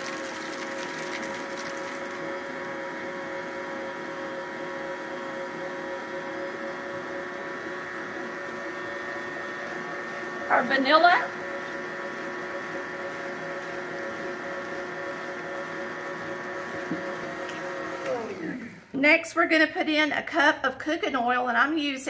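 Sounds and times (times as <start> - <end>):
electric stand mixer running: 0.0 - 19.0.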